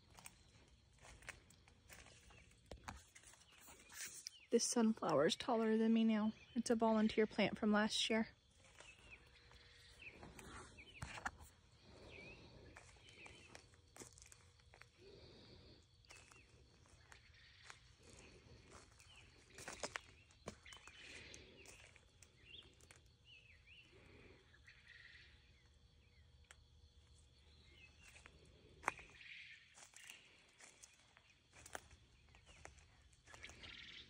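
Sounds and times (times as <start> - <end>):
footsteps on wood-chip mulch: 0.0 - 4.5, 8.4 - 23.2, 26.5 - 34.0
birds chirping: 0.0 - 34.0.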